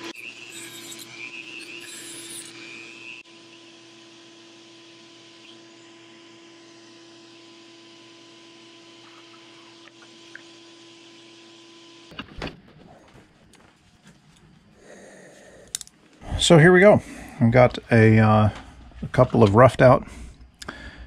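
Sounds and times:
shop vacuum motor hum: 0.0s - 12.1s.

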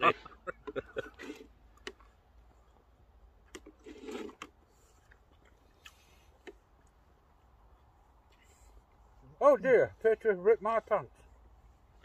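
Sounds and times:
chewing: 4.3s - 6.6s.

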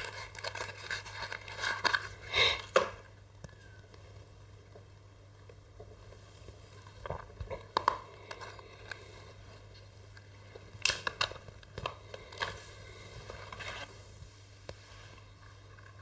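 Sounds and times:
plastic packaging crinkling and tearing: 0.0s - 2.8s.

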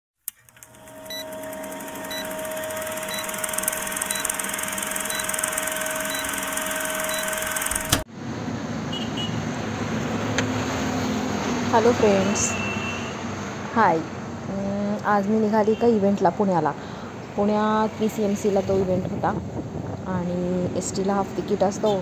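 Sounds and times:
projector whirr: 0.3s - 8.1s
held tone: 0.5s - 8.0s
short beeps: 2.0s - 7.9s
roadside traffic: 7.7s - 22.0s.

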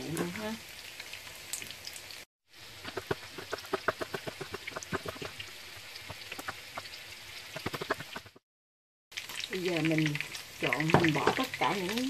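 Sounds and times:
knife chopping on cutting board: 2.9s - 5.4s.

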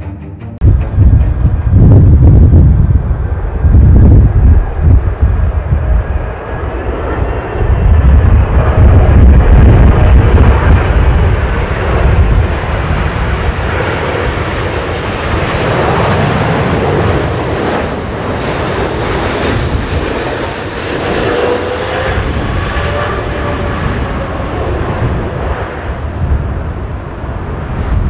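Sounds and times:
jet engine rumble: 0.6s - 28.0s.

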